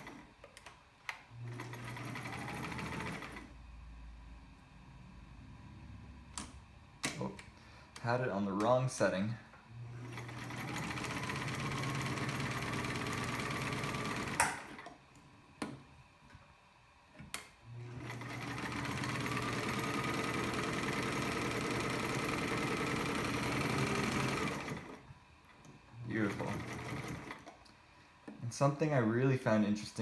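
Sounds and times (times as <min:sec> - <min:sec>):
sewing machine stitching: 0:00.0 - 0:00.4, 0:01.4 - 0:03.5, 0:09.8 - 0:15.0, 0:17.7 - 0:25.0, 0:26.0 - 0:27.5
sewing machine clicks: 0:10.1 - 0:15.0, 0:17.3 - 0:25.0, 0:25.6 - 0:27.6.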